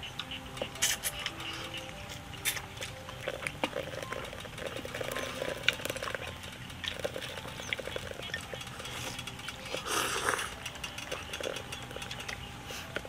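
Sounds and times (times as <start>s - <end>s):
man chewing and slurping: 0.6s - 6.2s.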